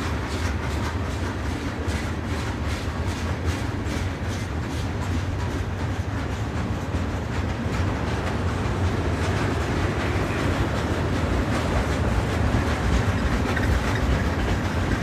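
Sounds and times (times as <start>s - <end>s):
freight train rolling past: 0.0s - 15.0s
train wheel clicks: 0.0s - 15.0s.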